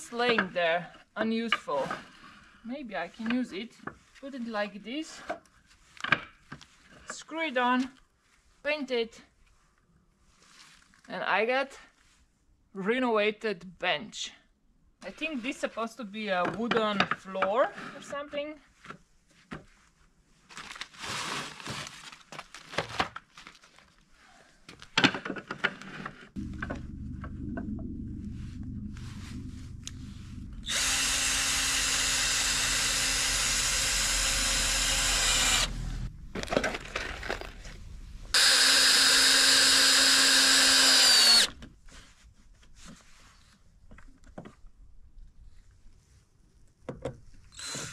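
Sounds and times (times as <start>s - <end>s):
low steady hum: 26.4s - 41.5s
electric drill running: 30.6s - 36.1s, 38.3s - 41.5s, 47.6s - 47.9s.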